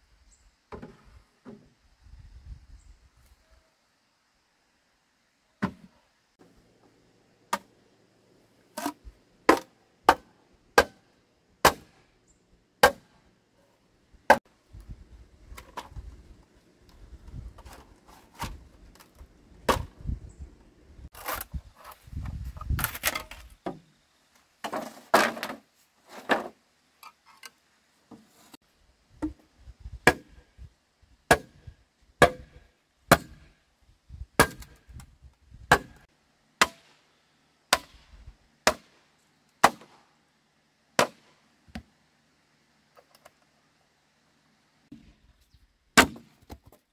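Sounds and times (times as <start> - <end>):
chopping strikes on bamboo: 9.5 - 12.0, 12.8 - 13.2, 19.7 - 19.9, 30.0 - 30.4, 31.3 - 31.6, 32.2 - 33.6, 34.4 - 34.8, 35.7 - 36.0, 36.6 - 36.9, 37.7 - 39.0, 39.6 - 40.0, 41.0 - 41.9, 46.0 - 46.4.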